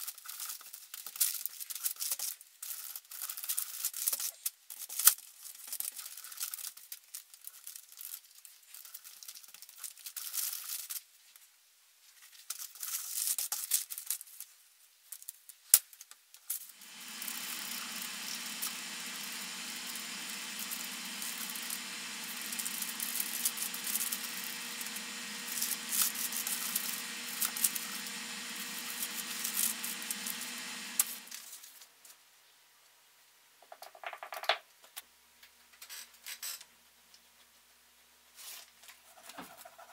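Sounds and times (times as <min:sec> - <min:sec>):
steady machine hum: 0:16.8 - 0:31.5.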